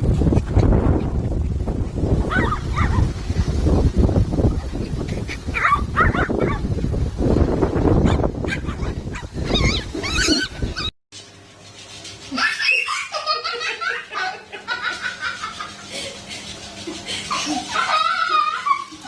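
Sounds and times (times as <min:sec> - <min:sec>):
loud rumbling noise: 0:00.0 - 0:10.8
small dog yelping: 0:02.3 - 0:03.1, 0:05.5 - 0:06.6, 0:08.1 - 0:10.9
person laughing: 0:12.3 - 0:19.0.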